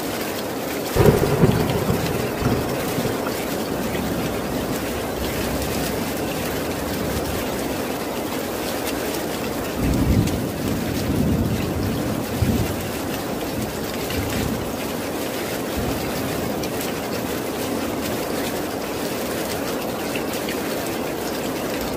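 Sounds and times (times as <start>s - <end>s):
steady rain: 0.0s - 21.9s
low thunder rumble: 1.0s - 7.9s.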